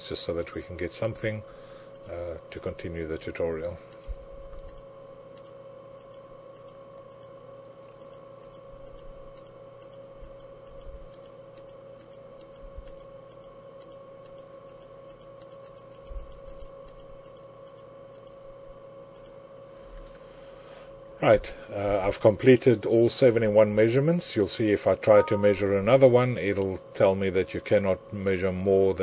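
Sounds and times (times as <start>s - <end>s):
faint steady hum: 0.0s - 29.0s
computer mouse clicking: 1.2s - 18.4s, 19.1s - 19.4s.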